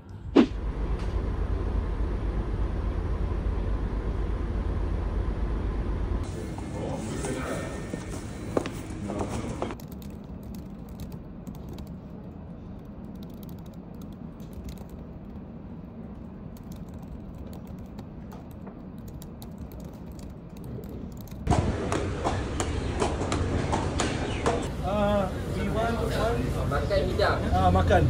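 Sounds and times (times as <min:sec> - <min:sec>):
low steady hum: 0:00.0 - 0:28.0
outdoor background noise: 0:00.0 - 0:28.0
laptop keyboard typing: 0:09.7 - 0:15.5, 0:16.2 - 0:21.5.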